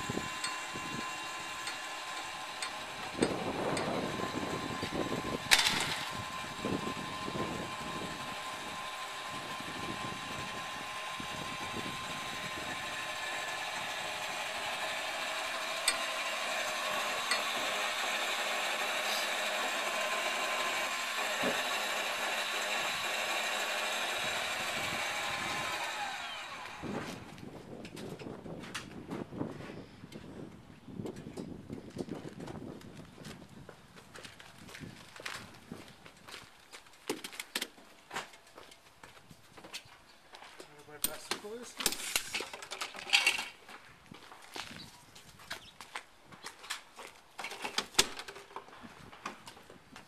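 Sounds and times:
small electric motor whining: 0:00.0 - 0:27.5.

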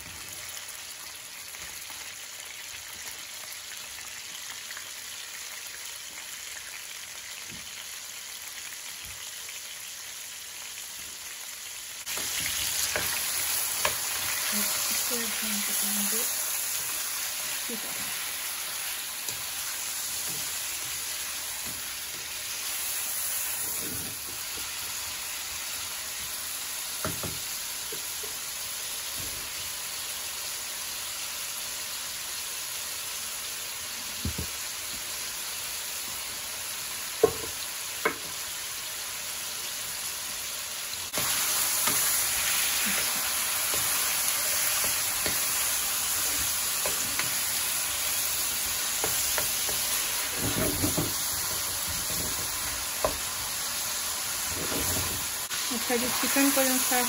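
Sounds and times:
chicken sizzling in ghee: 0:00.0 - 0:57.0
wooden spatula knocking pan: 0:37.2 - 0:38.4, 0:49.0 - 0:53.2.

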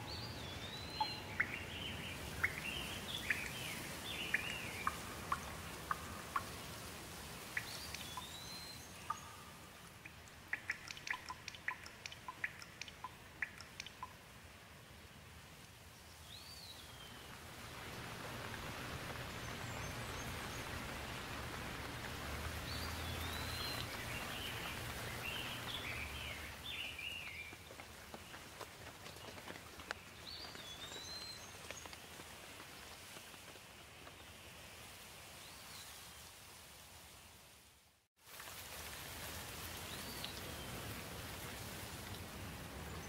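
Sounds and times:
birds chirping: 0:00.0 - 0:06.8, 0:07.4 - 0:14.2, 0:16.4 - 0:32.8
rain falling and dripping: 0:00.0 - 0:37.1, 0:38.2 - 0:43.0.

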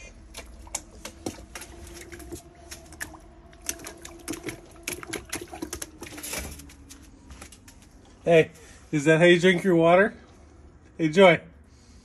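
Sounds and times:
puppy lapping water from bowl: 0:00.1 - 0:07.0.

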